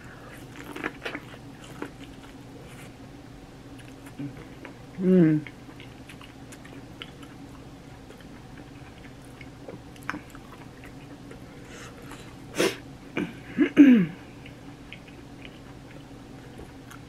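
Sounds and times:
chewing corn on the cob: 0.3s - 3.0s, 3.7s - 4.8s, 5.4s - 12.4s, 14.4s - 17.0s.

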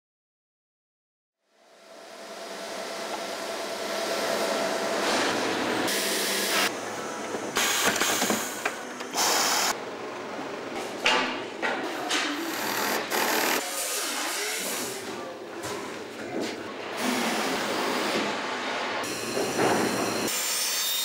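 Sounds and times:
machinery running: 2.4s - 13.7s.

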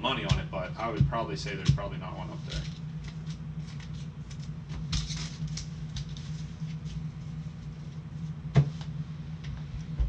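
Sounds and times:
steady low hum: 0.0s - 10.0s
cards clicking and rustling: 2.6s - 7.0s.

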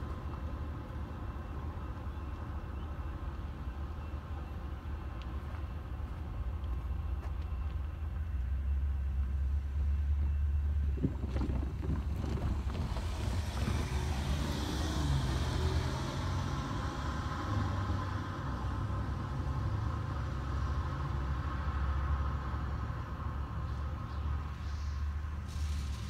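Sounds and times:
train rumbling: 0.0s - 17.4s
engine hum: 0.0s - 26.0s
vehicle tyre and engine noise: 0.0s - 26.0s.

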